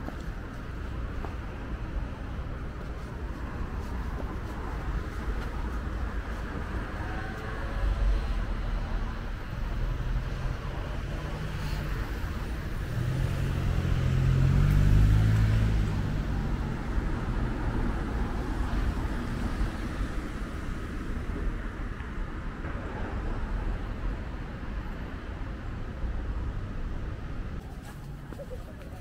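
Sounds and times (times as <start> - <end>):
street traffic rumble: 0.0 - 29.0
vehicle engine passing by: 6.7 - 9.0, 9.8 - 19.6.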